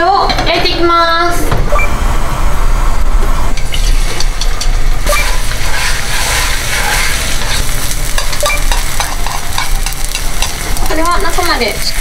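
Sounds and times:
egg sizzling in frying pan: 3.6s - 12.0s
chopsticks clicking and scraping pan: 5.7s - 12.0s.

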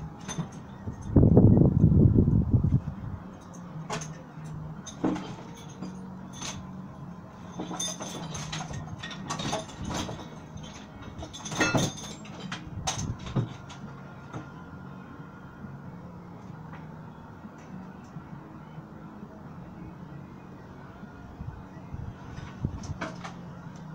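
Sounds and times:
light clinks and knocks: 0.2s - 1.2s, 3.3s - 6.8s, 7.4s - 14.6s.

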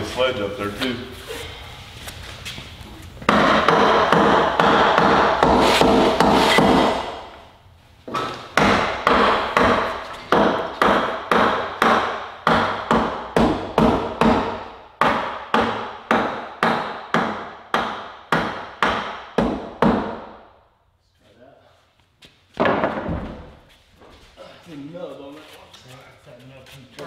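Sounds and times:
hammer striking: 3.3s - 7.4s, 8.1s - 20.4s.

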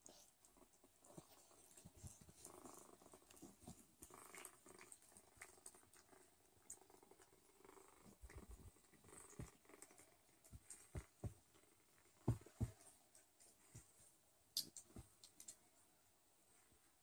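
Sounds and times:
cats purring: 0.0s - 15.8s
soft clicks and rustles: 0.0s - 15.8s.

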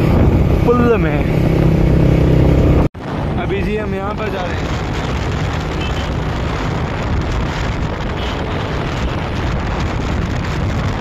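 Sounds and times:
motorcycle engine: 0.0s - 3.2s
road noise: 0.0s - 11.0s
wind buffeting microphone: 0.0s - 11.0s.

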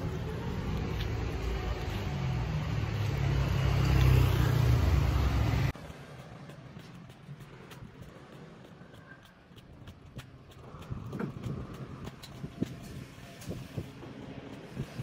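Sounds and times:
vehicle engine passing close: 0.0s - 6.5s
faint street noise: 0.0s - 15.0s.

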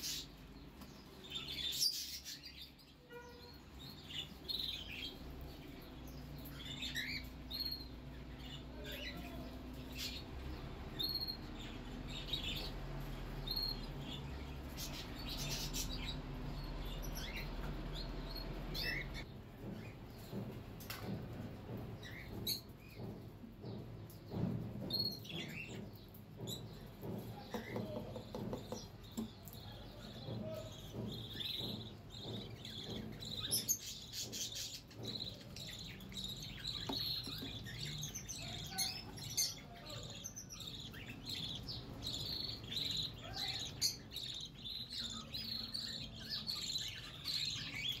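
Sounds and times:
knocks on wooden box: 26.4s - 29.4s.

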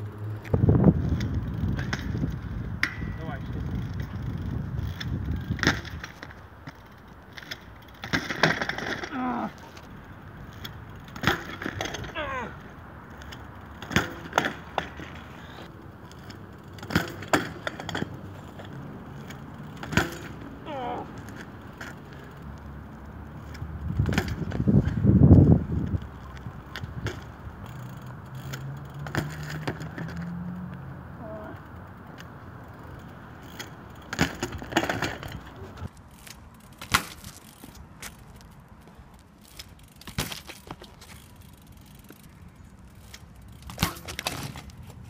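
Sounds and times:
bicycle clattering onto asphalt: 0.4s - 30.3s, 31.2s - 45.0s.

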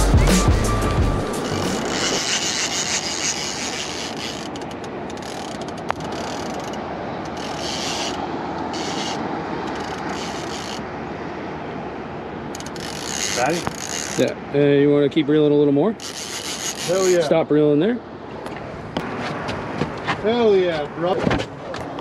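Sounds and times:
fishing reel ratcheting: 1.4s - 10.8s, 12.5s - 14.2s, 16.0s - 17.1s.

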